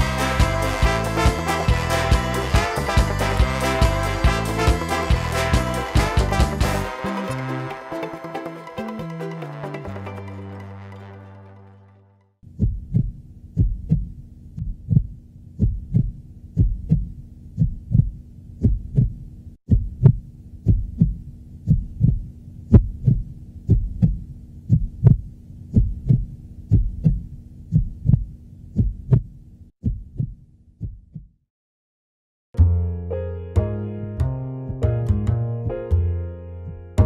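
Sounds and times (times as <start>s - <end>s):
heartbeat thumps: 12.5s - 31.4s.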